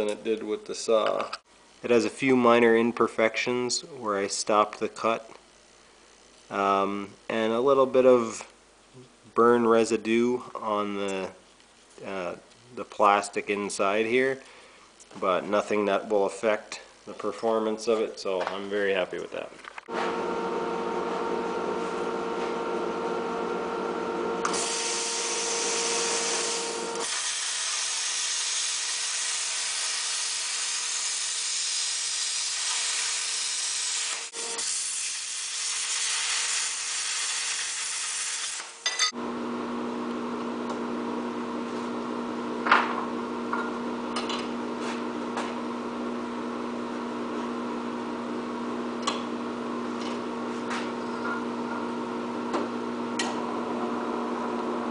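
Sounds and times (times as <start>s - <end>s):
angle grinder cutting steel: 24.4s - 39.1s
drill press motor running: 39.2s - 54.9s.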